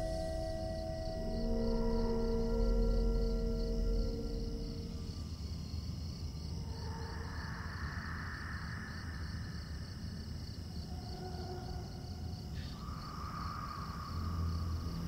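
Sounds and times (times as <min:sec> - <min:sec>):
low rumbling drone: 0:00.0 - 0:08.2
crickets chirping: 0:00.0 - 0:15.0.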